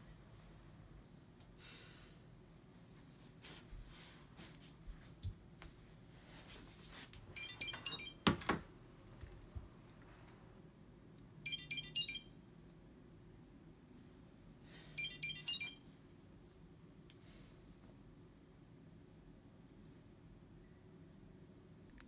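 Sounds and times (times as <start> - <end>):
mobile phone ringtone: 7.4 - 8.2, 11.4 - 12.4, 15.0 - 15.9.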